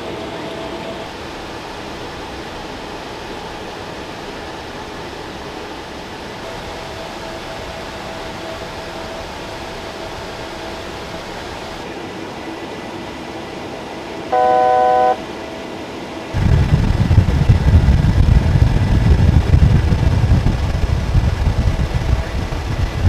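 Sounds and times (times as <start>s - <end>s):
aircraft cockpit hum: 6.4s - 15.3s, 16.4s - 23.0s
short electronic tone: 14.3s - 15.2s
fluctuating low rumble: 16.4s - 23.0s.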